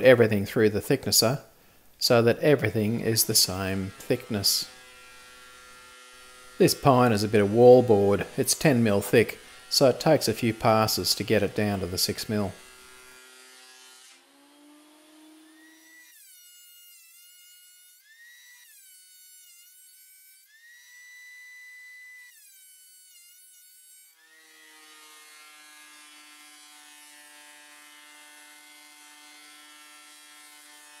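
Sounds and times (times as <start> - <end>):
thickness planer whining: 2.6 - 31.0.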